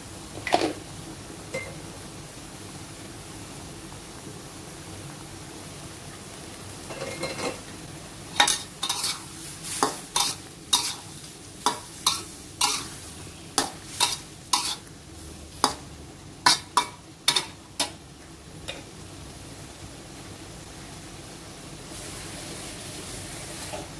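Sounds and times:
low sizzle: 0:00.0 - 0:23.9
metal spatula scraping a wok: 0:08.4 - 0:14.9.

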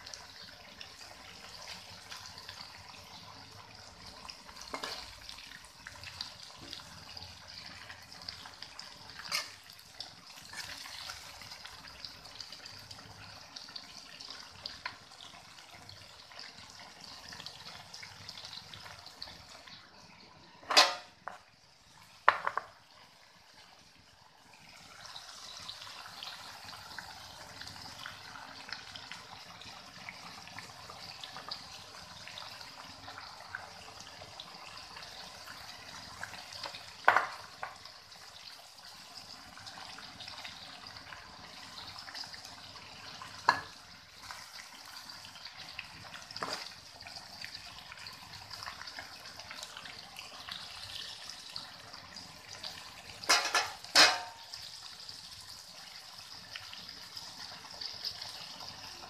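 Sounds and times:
food sizzling in a wok: 0:00.0 - 0:59.0
spatula clanking on metal: 0:20.7 - 0:21.1, 0:53.3 - 0:54.4.

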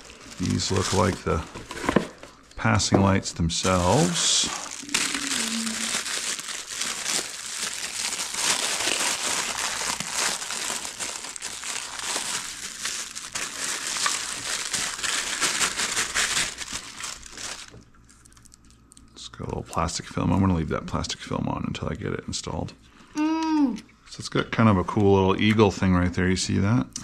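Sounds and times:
plastic bags crinkling: 0:00.0 - 0:02.8, 0:03.4 - 0:18.9.

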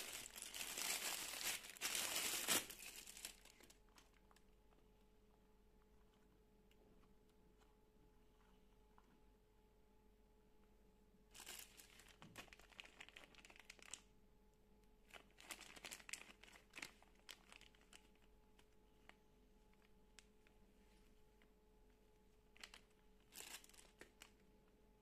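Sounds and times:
plastic packaging crinkling: 0:00.0 - 0:04.4, 0:11.3 - 0:14.1, 0:15.1 - 0:18.7, 0:22.5 - 0:24.4.

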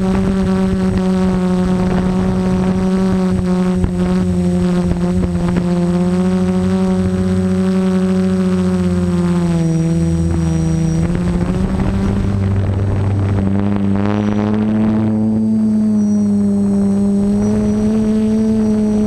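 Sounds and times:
drone propellers buzzing: 0:00.0 - 0:19.0
rush of noise: 0:00.0 - 0:19.0.

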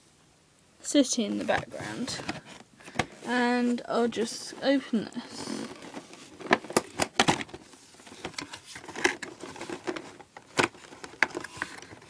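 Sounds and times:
cardboard box being handled: 0:01.4 - 0:12.0
packaging crinkling: 0:05.3 - 0:12.0.

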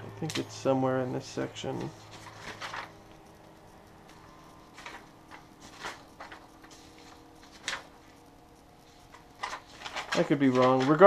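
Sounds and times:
low hum: 0:00.0 - 0:10.6
paper pages rustling: 0:01.6 - 0:03.4, 0:04.0 - 0:08.2, 0:08.8 - 0:11.0.

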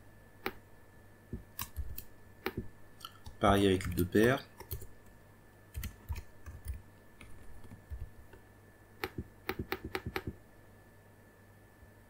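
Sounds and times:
faint steady hum: 0:00.0 - 0:12.0
keyboard typing: 0:01.4 - 0:05.1, 0:05.7 - 0:08.4, 0:09.0 - 0:10.4.

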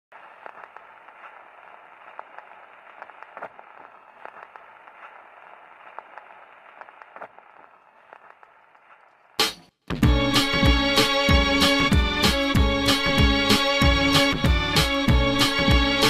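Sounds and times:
crackling static hiss: 0:00.1 - 0:09.4
pops and clicks: 0:00.1 - 0:09.5.

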